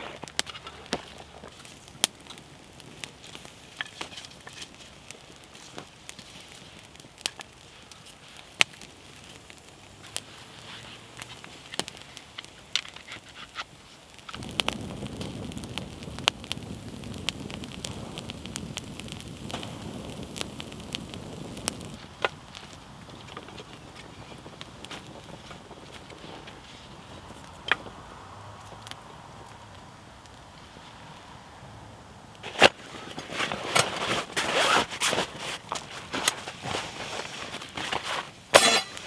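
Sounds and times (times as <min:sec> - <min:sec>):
campfire crackling: 0:00.0 - 0:39.0
rush of burning flame: 0:00.0 - 0:39.0
sharp pops: 0:11.2 - 0:26.6.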